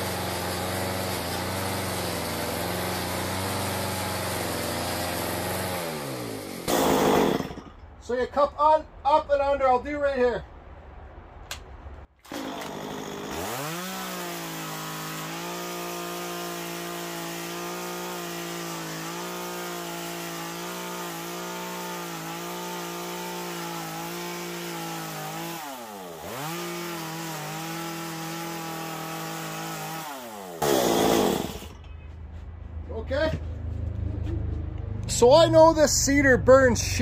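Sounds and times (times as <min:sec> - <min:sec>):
chainsaw cutting wood: 0:00.0 - 0:07.9, 0:12.2 - 0:31.8.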